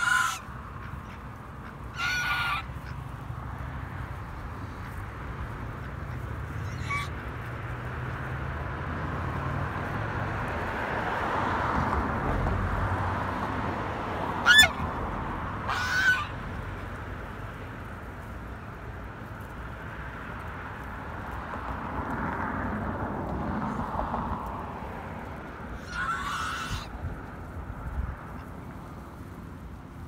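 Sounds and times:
goose honking: 0.0 - 3.2, 4.7 - 7.4, 14.4 - 14.9, 15.6 - 16.4, 25.8 - 26.9.

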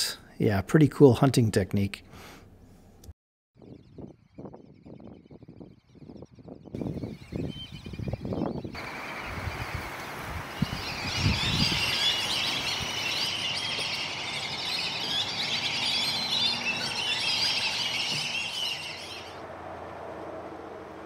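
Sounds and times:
flock of birds chattering: 7.4 - 19.4.

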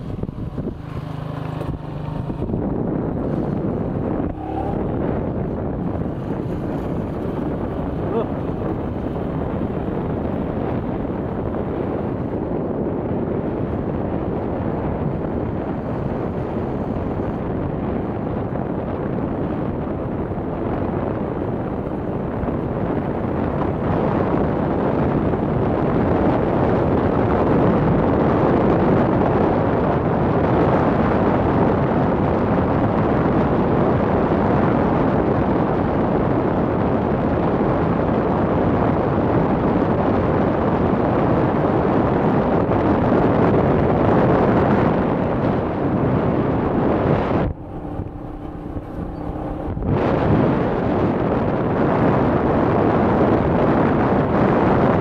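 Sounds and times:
motorcycle engine running: 0.0 - 18.1, 45.0 - 51.6
wind buffeting microphone: 0.0 - 55.0.

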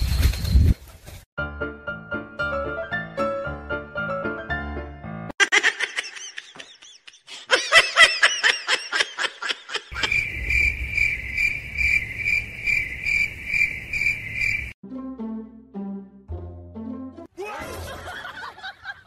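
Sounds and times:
cricket chirping trill: 9.9 - 14.8.

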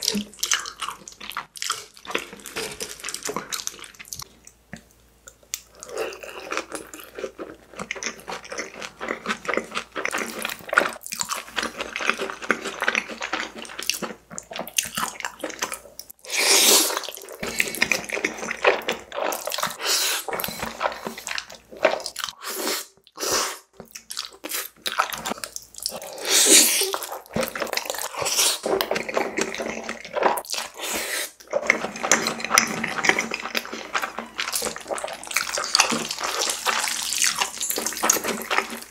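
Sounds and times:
wet chewing: 0.0 - 22.4, 23.0 - 38.9
loud noodle slurps: 16.2 - 17.7, 26.1 - 27.2, 30.6 - 38.9.

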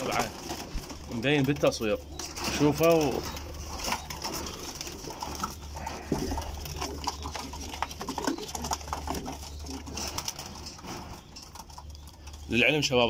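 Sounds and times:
clicks and rustles of birds and cage: 0.0 - 13.0
pigeons cooing: 0.0 - 13.0.

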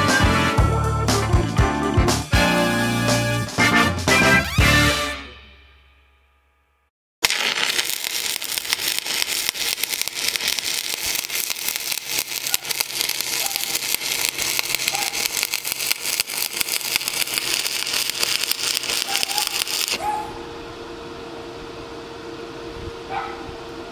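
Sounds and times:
welding arc crackling: 7.2 - 20.0.

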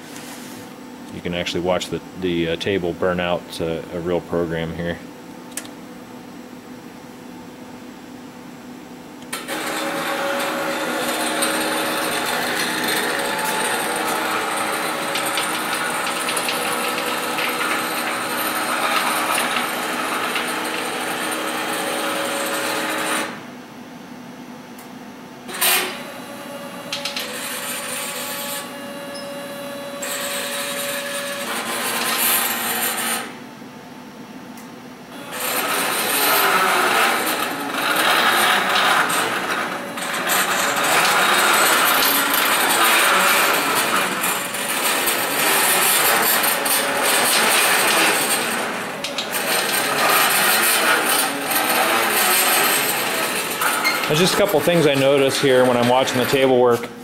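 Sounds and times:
stepper motors buzzing whine: 9.2 - 23.4, 25.5 - 33.4, 35.1 - 56.6.

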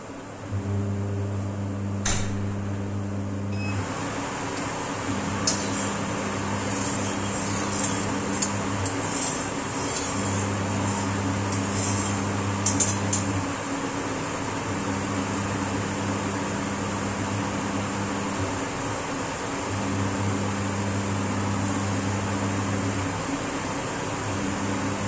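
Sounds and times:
steady hum and hiss: 0.0 - 25.0
metal spatula scraping a pan: 5.4 - 6.0, 6.6 - 13.2.

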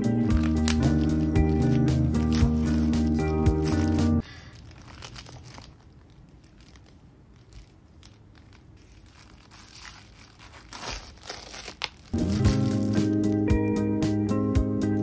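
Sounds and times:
plastic wrapping crinkling: 0.0 - 13.6.

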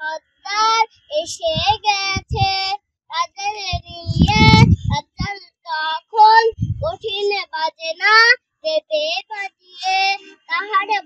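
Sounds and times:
girl singing unaccompanied: 0.0 - 11.0
low rumble: 3.8 - 5.3, 6.5 - 7.0.

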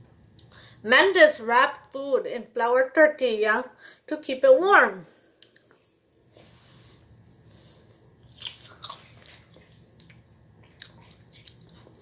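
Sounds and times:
person chewing food: 5.4 - 5.8, 6.4 - 12.0.

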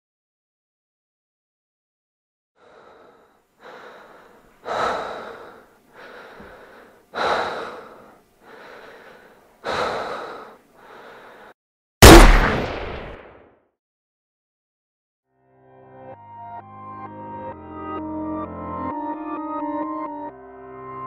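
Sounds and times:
person breathing heavily: 2.6 - 11.6.

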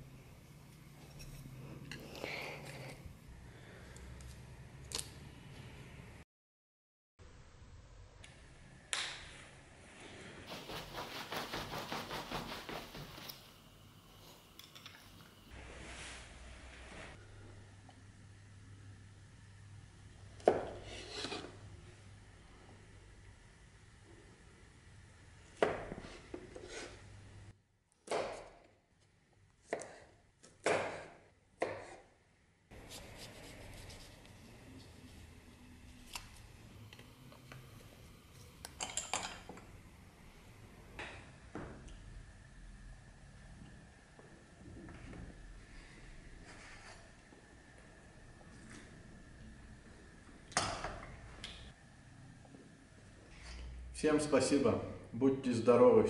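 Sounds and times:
leather scabbard rustling and tapping: 10.5 - 13.5
knife cutting on a bamboo board: 29.6 - 32.1.

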